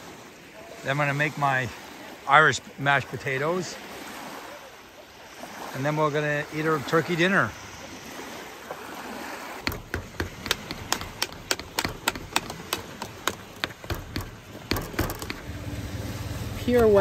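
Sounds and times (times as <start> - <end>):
potato masher knocking metal pot: 9.7 - 15.5.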